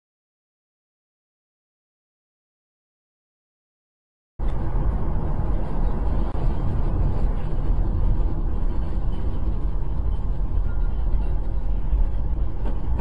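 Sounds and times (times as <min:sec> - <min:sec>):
car engine and tyre rumble: 0:04.4 - 0:13.0.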